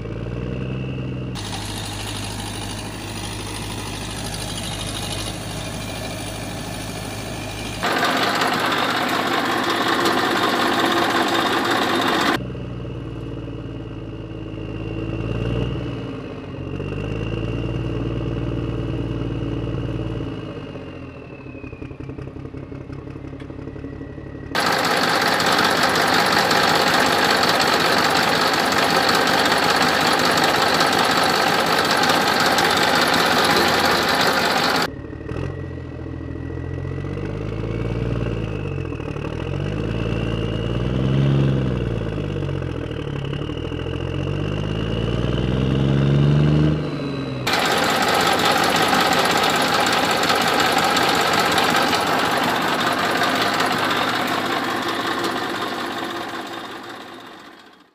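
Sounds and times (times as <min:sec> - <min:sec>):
vehicle engine revving: 0:24.6 - 0:35.7, 0:36.9 - 0:57.4.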